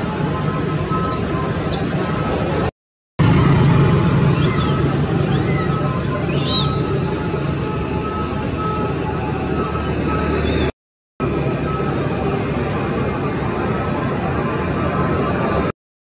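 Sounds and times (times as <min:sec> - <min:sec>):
high warbling squeal: 0:03.2 - 0:15.5.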